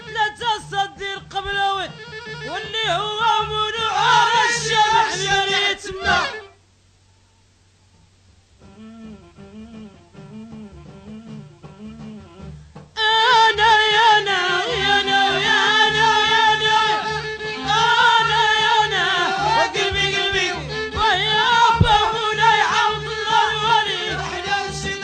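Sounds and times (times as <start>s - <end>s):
ornamented melody over low beat: 8.6s - 13.0s, 15.5s - 22.8s.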